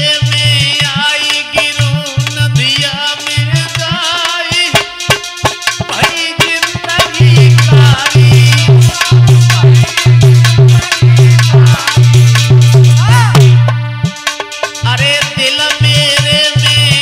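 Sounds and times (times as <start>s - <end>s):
drums: 0.0s - 17.0s
heavy repeating bass beat: 4.8s - 17.0s.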